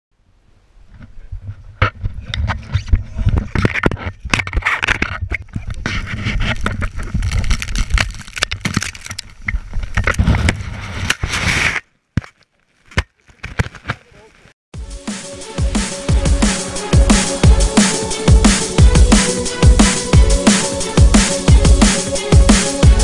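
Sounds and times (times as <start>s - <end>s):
knocks and scrapes in raft: 0.9s - 12.4s.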